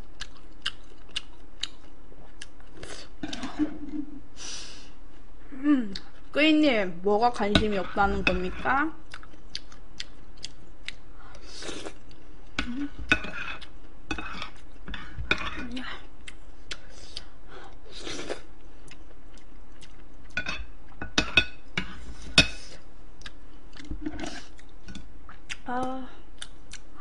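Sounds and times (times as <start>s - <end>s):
spoon scraping ceramic plates: 7.4s - 8.9s, 13.0s - 15.6s.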